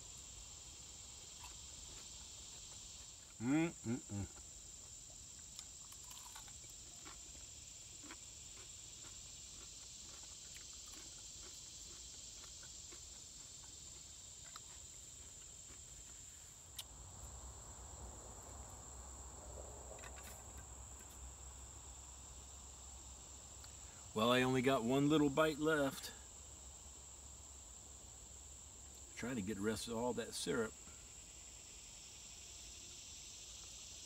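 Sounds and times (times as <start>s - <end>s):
high-pitched insect drone: 0.0s - 7.7s.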